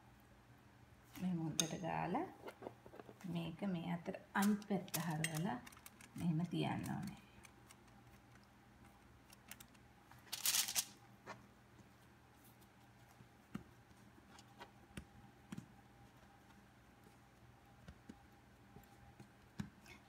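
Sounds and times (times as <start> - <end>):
hands handling dough: 4.4 - 20.0.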